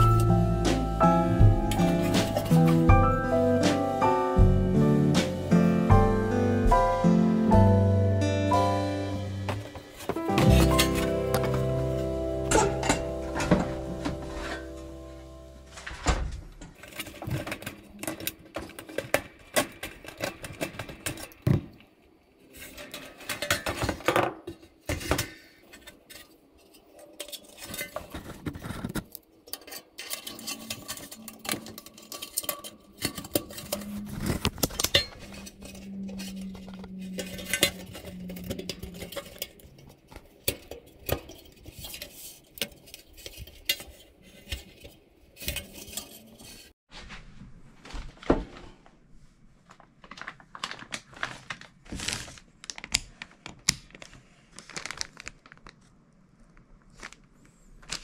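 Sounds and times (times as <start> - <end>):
metal parts and tools clinking: 9.5 - 11.7, 12.4 - 15.0, 16.6 - 21.6, 22.4 - 46.7.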